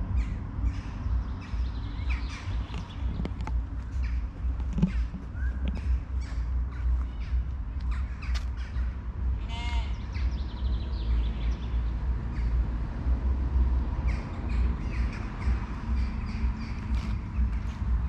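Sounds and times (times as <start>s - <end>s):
steady low rumble: 0.0s - 18.0s
harsh crow-like bird call: 9.4s - 10.1s.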